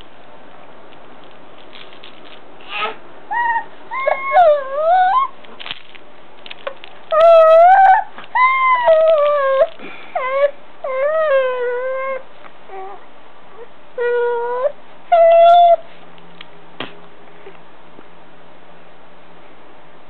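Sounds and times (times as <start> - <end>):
baby fussing cries: 2.6 - 4.5.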